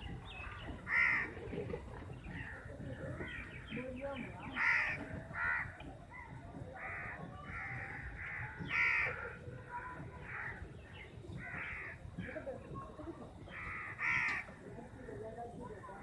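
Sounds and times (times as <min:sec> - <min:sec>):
crows cawing: 0:00.4 - 0:01.6, 0:04.5 - 0:12.4, 0:13.4 - 0:15.1.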